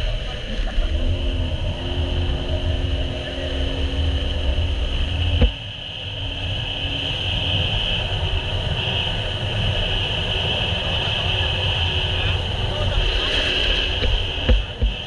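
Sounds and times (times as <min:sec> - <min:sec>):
high whine: 0:00.0 - 0:15.0
jet ski engine running: 0:00.0 - 0:15.0.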